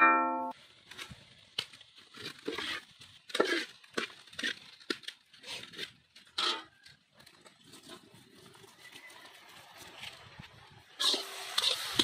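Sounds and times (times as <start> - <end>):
metal ladle scraping metal pot: 2.1 - 4.7, 5.3 - 6.7, 10.9 - 12.0.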